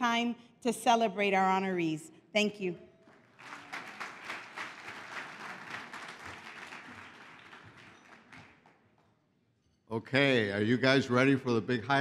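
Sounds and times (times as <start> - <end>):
audience applauding: 3.1 - 9.1.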